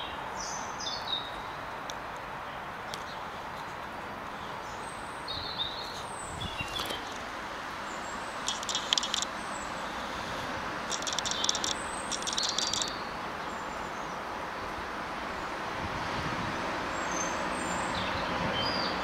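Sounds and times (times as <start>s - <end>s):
distant road traffic: 0.0s - 19.0s
bird chattering calls: 8.4s - 9.3s, 10.9s - 13.0s
faint thin chirps: 8.5s - 9.3s, 10.9s - 13.0s.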